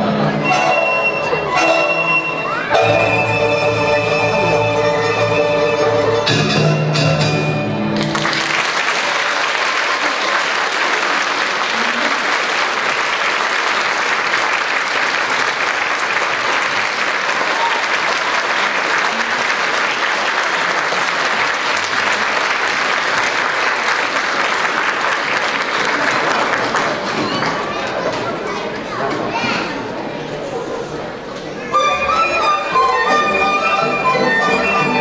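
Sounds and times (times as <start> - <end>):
traditional instrument ensemble chord: 0.0 - 8.2
audience applause: 7.9 - 28.8.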